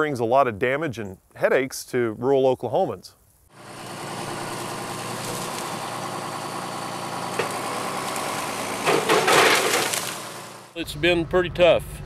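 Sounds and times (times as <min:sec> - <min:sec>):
tractor diesel engine running: 0:03.6 - 0:12.0.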